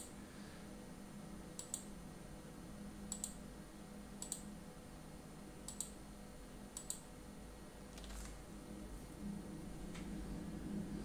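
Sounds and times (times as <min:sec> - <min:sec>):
faint steady hum: 0:00.0 - 0:11.0
computer mouse clicks: 0:01.6 - 0:01.9, 0:03.1 - 0:03.4, 0:04.2 - 0:04.5, 0:05.6 - 0:06.0, 0:06.7 - 0:07.1.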